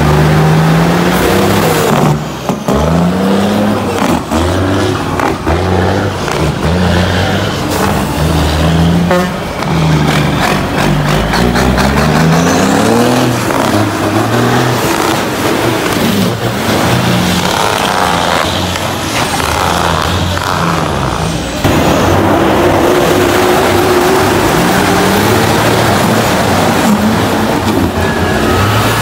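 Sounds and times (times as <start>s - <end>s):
diesel trucks revving: 0.0s - 29.0s
engine accelerating close by: 0.0s - 29.0s.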